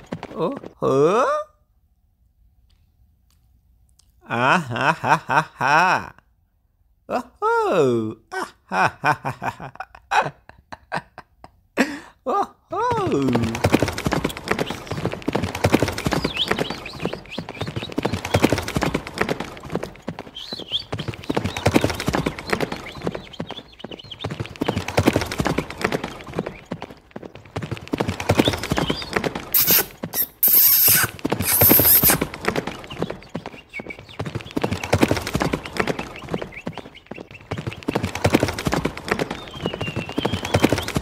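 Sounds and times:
toy horse clip-clop: 12.9 - 41.0.

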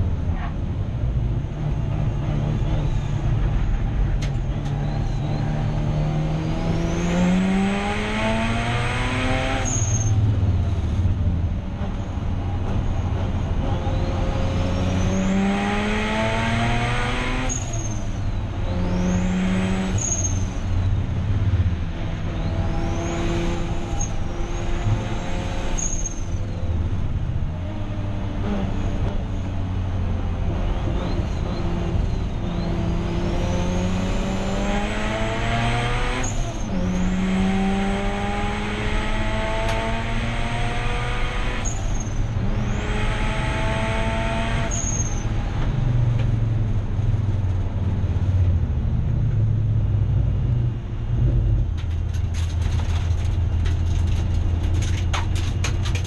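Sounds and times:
race car engine accelerating: 1.4 - 11.0, 11.8 - 18.0, 21.4 - 26.8, 27.6 - 47.4.

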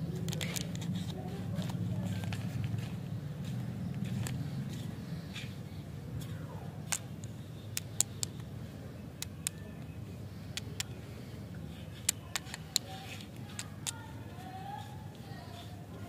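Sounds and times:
lollipop sticks clicking together: 6.9 - 8.5.

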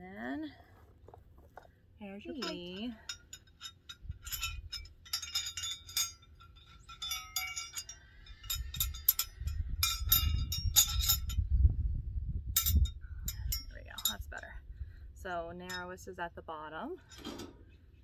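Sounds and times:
metal plates clicking and clinking: 2.3 - 11.4, 17.0 - 17.6
low rumble: 7.8 - 15.8.

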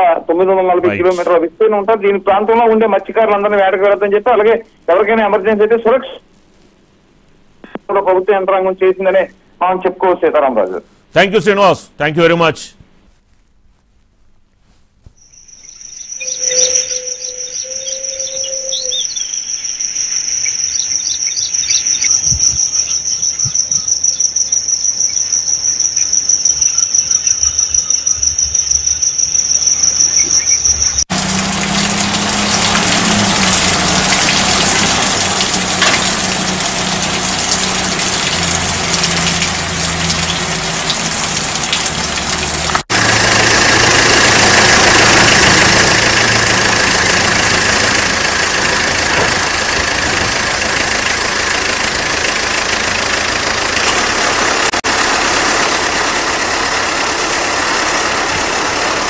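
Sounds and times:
high pulsing chirr: 15.2 - 31.0
vehicle engine running: 15.4 - 59.0.

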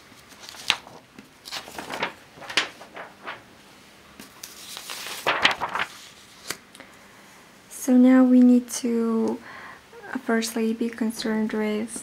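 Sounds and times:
paper rustling: 0.1 - 3.6, 4.2 - 6.6.

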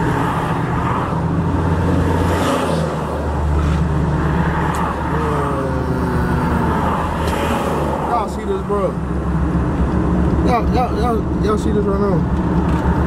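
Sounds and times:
vehicle passing by: 0.0 - 9.9
highway traffic rumble: 0.0 - 13.0.

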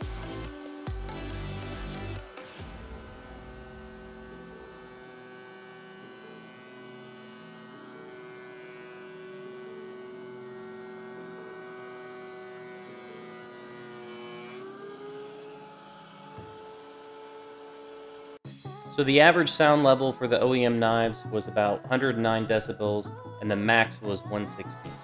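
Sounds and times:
planer machine whine: 0.0 - 18.4.

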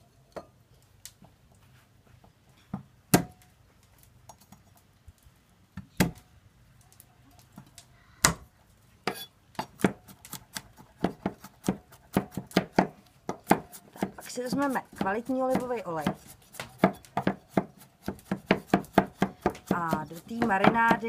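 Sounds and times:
knife chopping on wooden board: 9.1 - 21.0.

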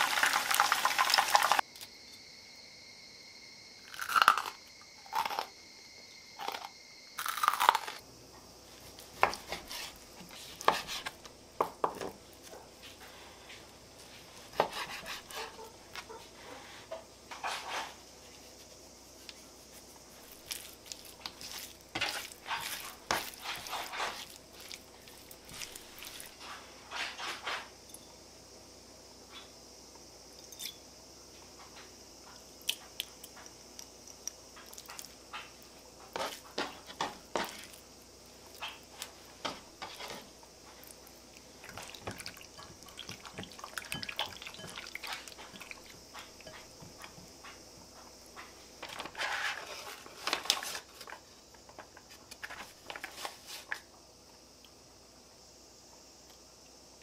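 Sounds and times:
seasonings poured into bowl: 0.0 - 1.6
faint steady high hiss: 0.0 - 3.9, 7.9 - 57.0.

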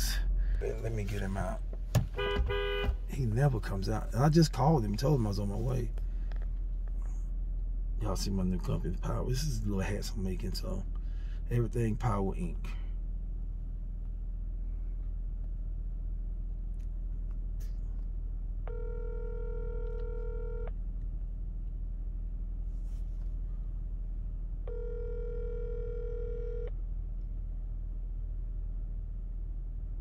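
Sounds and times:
steady low hum: 0.0 - 30.0
telephone ringback tone: 18.7 - 20.7, 24.7 - 26.7.

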